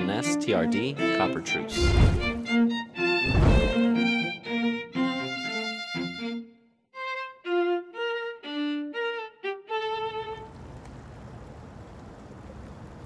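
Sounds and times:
violin melody: 0:00.0 - 0:10.6
wind rushing: 0:03.2 - 0:03.8
choppy water: 0:10.5 - 0:13.0.

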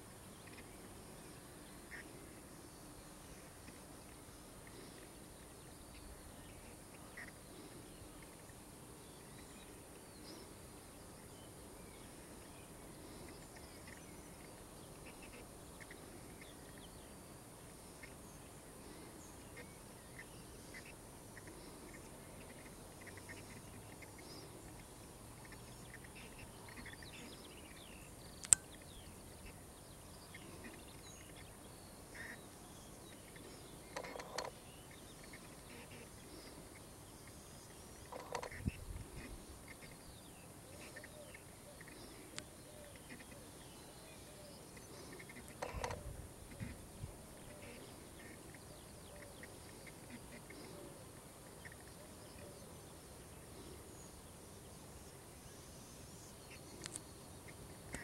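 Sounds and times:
faint bird calls: 0:00.0 - 0:58.0
sharp click: 0:28.4 - 0:28.7.

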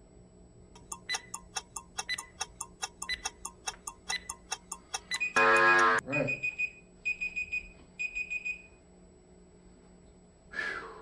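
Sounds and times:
timer countdown ticking: 0:00.8 - 0:06.6
loud buzzer: 0:05.2 - 0:06.3.

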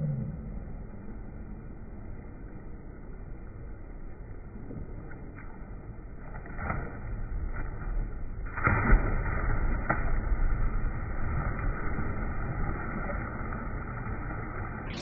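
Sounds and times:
steady low rumble: 0:00.0 - 0:15.0
swimmer splashing: 0:05.7 - 0:15.0
person entering water splash: 0:06.5 - 0:15.0.

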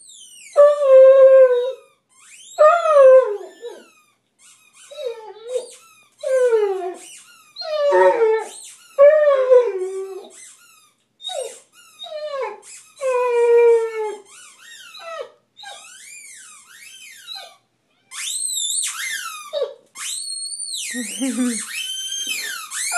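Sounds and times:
dog howling and whining: 0:00.5 - 0:01.8, 0:02.5 - 0:03.9, 0:04.9 - 0:10.4, 0:11.2 - 0:15.9
dog yelping: 0:11.2 - 0:14.2.

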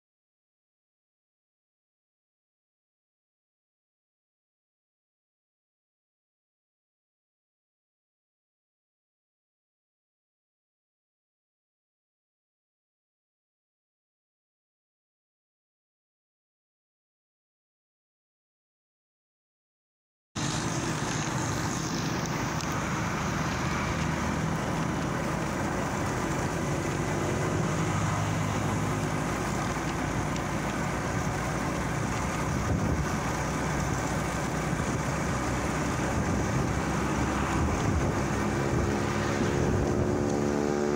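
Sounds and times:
vehicle engine and road noise: 0:20.4 - 0:40.9.

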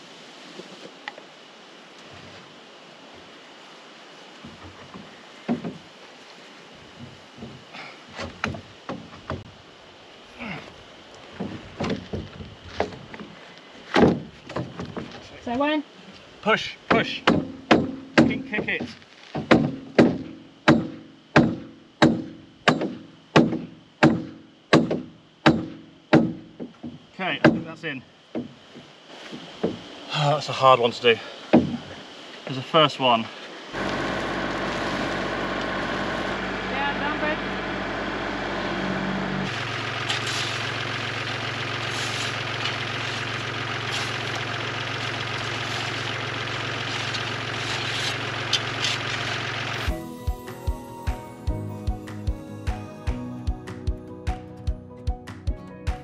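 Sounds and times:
tractor engine running: 0:33.8 - 0:54.7.

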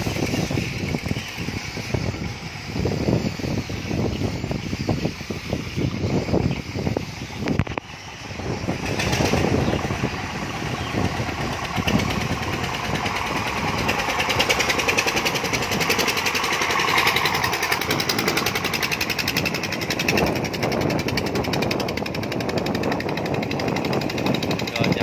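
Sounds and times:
diesel boat engine knocking: 0:07.6 - 0:25.0.

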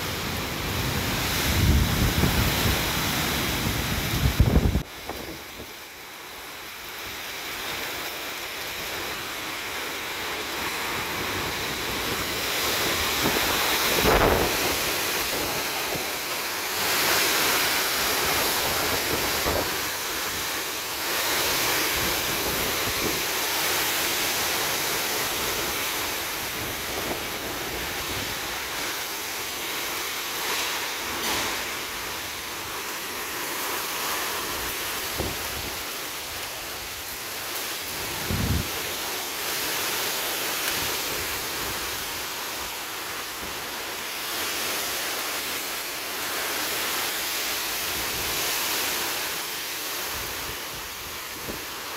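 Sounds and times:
strong gusting wind: 0:00.0 - 0:05.8, 0:09.9 - 0:29.8, 0:30.4 - 0:39.2
heavy rain: 0:00.0 - 0:51.9
wind buffeting microphone: 0:00.6 - 0:05.7, 0:11.3 - 0:16.2, 0:37.9 - 0:39.0.

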